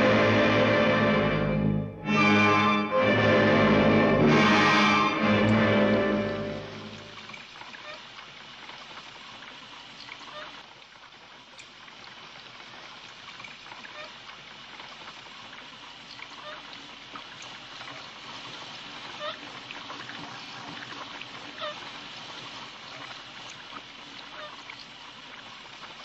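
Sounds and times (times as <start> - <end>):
liquid trickling and bubbling: 6.9 - 26.0.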